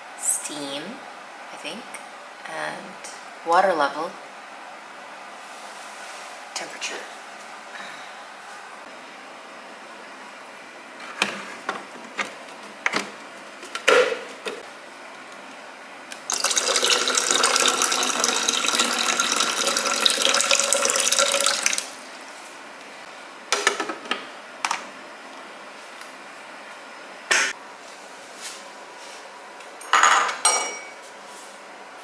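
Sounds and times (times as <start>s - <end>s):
water pouring into plastic tank: 16.2s - 21.9s.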